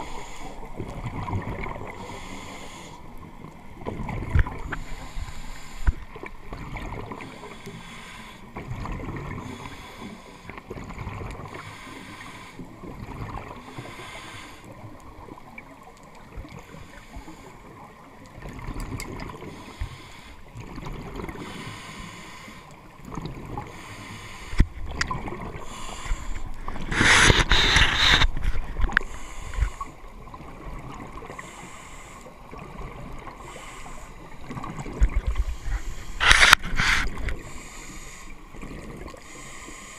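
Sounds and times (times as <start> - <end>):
scuba regulator hissing breaths: 0.0 - 0.7, 2.0 - 3.1, 4.7 - 6.1, 7.2 - 8.5, 9.4 - 10.5, 11.5 - 12.7, 13.6 - 14.7, 19.5 - 20.4, 21.4 - 22.8, 23.7 - 24.8, 25.6 - 30.0, 31.3 - 32.4, 33.3 - 34.4, 35.4 - 38.5, 39.2 - 39.9.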